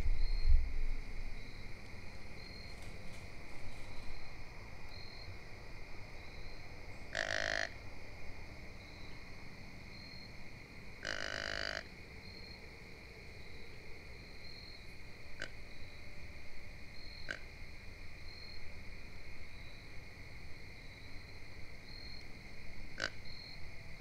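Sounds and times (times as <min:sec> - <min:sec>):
insects droning: 0:00.0 - 0:24.0
short animal calls: 0:11.0 - 0:11.8.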